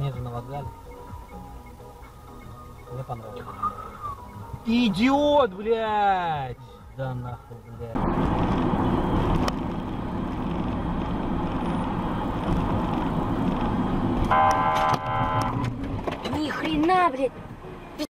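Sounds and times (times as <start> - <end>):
road and engine noise in car: 0.0 - 18.0
car horn: 14.3 - 15.7.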